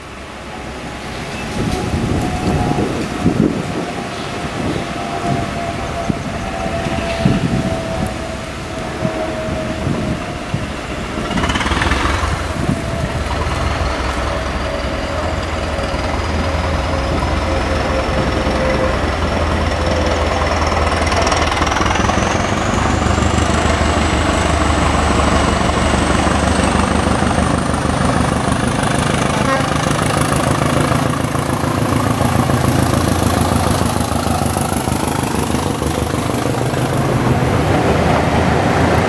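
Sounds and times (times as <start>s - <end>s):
train rush: 0.0s - 39.0s.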